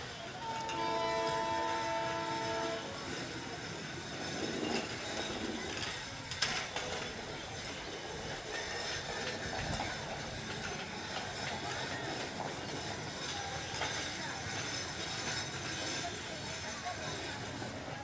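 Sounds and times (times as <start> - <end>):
locomotive air horn blast: 0.7 - 2.9.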